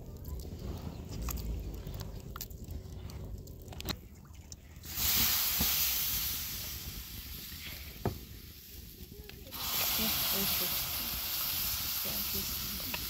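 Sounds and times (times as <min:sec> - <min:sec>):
dough sizzling on hot griddle: 0:04.9 - 0:13.0.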